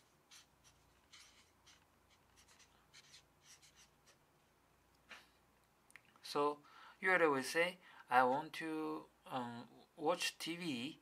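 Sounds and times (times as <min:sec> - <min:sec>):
marker pen scratching on paper: 0:00.0 - 0:04.2.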